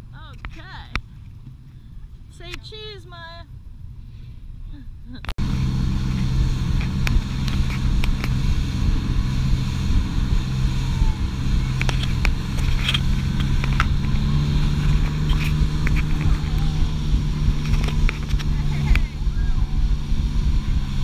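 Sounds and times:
wind buffeting microphone: 0:00.0 - 0:21.0
motorboat engine running: 0:05.3 - 0:21.0.

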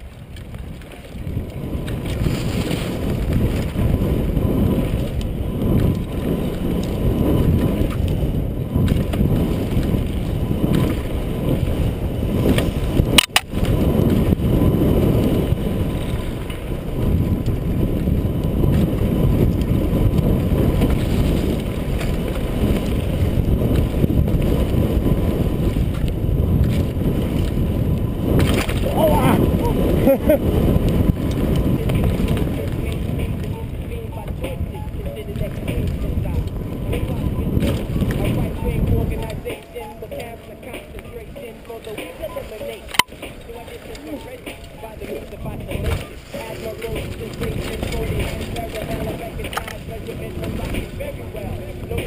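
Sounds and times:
bike rattling: 0:00.0 - 0:52.0
wind on microphone: 0:00.0 - 0:52.0.

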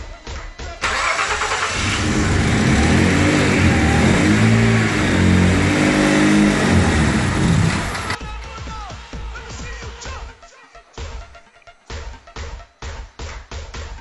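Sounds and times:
car engine revving: 0:00.8 - 0:08.2.

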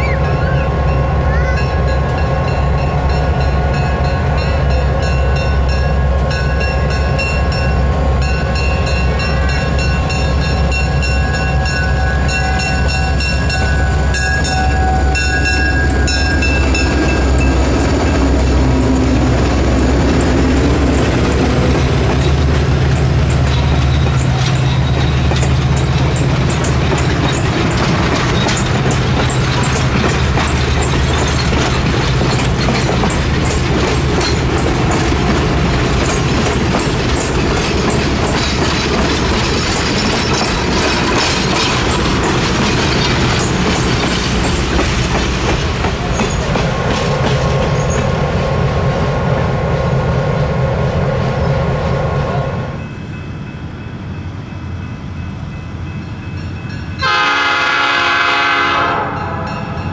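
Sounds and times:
diesel locomotive drone: 0:00.0 - 0:59.9
train wheels clicking over rail joints: 0:12.4 - 0:48.5.

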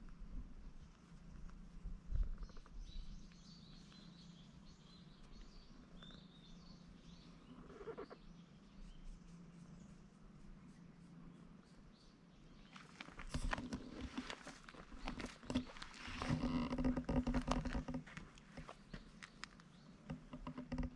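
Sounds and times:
small birds chirping: 0:00.6 - 0:20.9.

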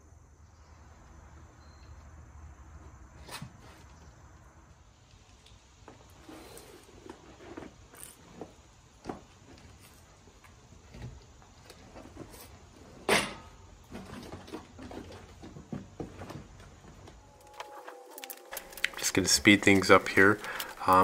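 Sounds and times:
fabric bag rustling: 0:17.4 - 0:21.0.

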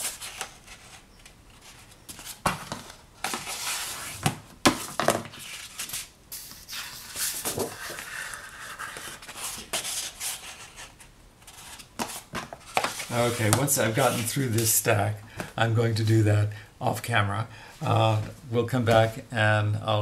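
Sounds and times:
paper rustling and sliding: 0:00.0 - 0:14.8.

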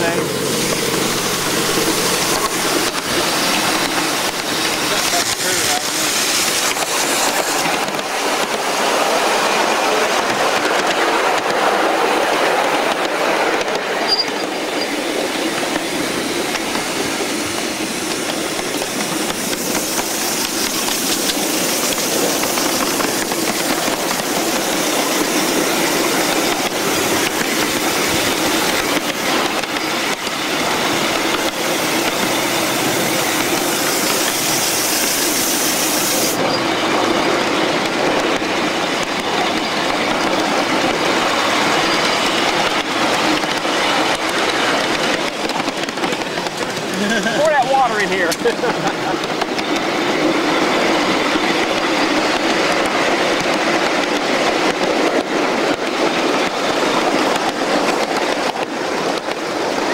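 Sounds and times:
steam exhaust chuffing: 0:00.0 - 0:08.7
wheels clacking over rails: 0:00.0 - 0:59.9.

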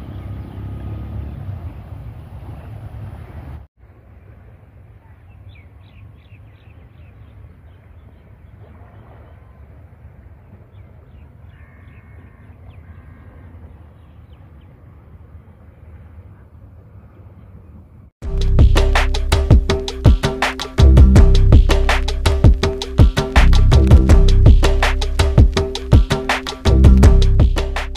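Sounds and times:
birds chirping: 0:00.0 - 0:27.9
low outdoor rumble: 0:17.9 - 0:20.1, 0:20.8 - 0:27.9.

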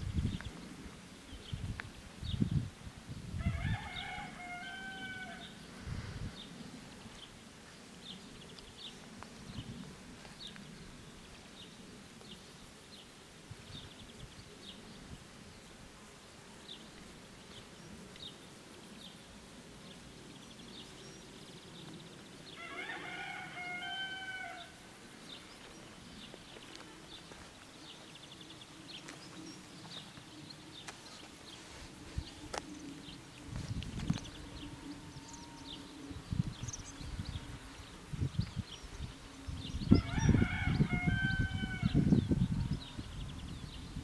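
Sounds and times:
rooster crowing: 0:03.4 - 0:05.6, 0:22.6 - 0:24.8, 0:39.9 - 0:42.9
small birds chirping: 0:23.3 - 0:44.0.

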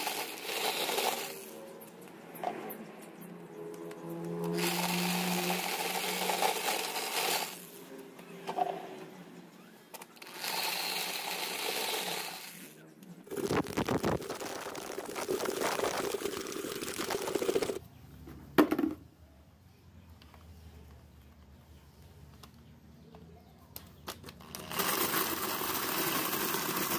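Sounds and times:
electric drill running: 0:00.0 - 0:01.6, 0:04.4 - 0:07.8, 0:10.2 - 0:12.7, 0:24.4 - 0:26.9
corn kernels clattering into bucket: 0:13.3 - 0:17.8
cob dropped into plastic bucket: 0:18.6 - 0:19.0.

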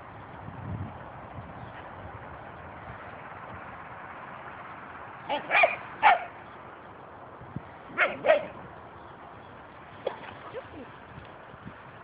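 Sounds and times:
dog barking: 0:05.3 - 0:06.3, 0:08.0 - 0:08.6.

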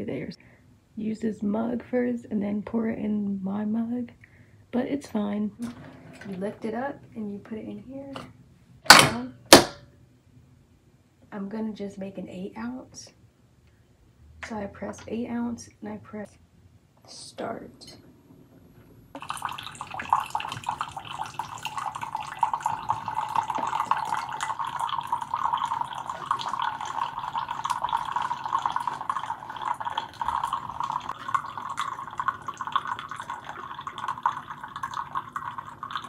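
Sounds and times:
coffee maker pump running: 0:19.2 - 0:36.0
hot liquid pouring into a mug: 0:19.2 - 0:36.0.

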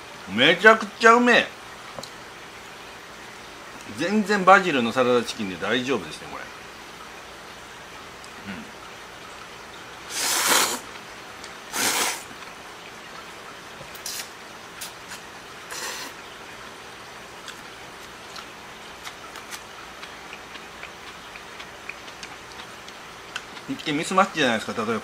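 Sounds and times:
person slurping noodles: 0:10.1 - 0:10.9, 0:11.7 - 0:12.3, 0:15.1 - 0:16.2
chewing: 0:17.4 - 0:23.9.

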